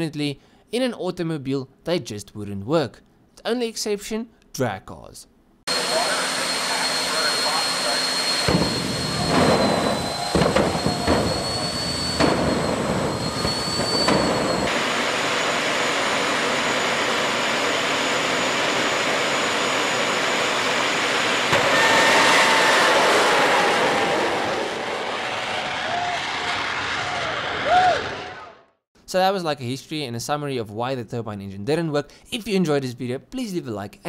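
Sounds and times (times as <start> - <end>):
steady jet engine noise: 5.7 - 28.3
loud afterburner blasts: 5.7 - 28.5
high turbine whine: 5.7 - 28.6.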